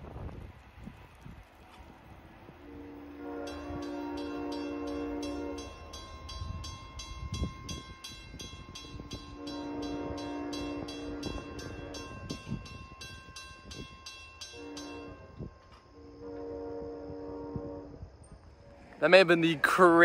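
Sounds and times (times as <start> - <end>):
locomotive air horn blasts: 2.6 - 6.0, 9.1 - 12.6, 14.4 - 18.2
crossing bell ringing rapidly: 3.4 - 15.8.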